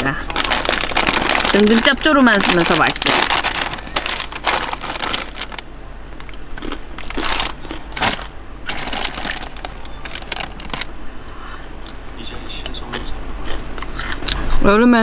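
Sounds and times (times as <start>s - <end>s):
snack bag rustling and crinkling: 0.0s - 10.9s
electric fan humming: 0.0s - 15.0s.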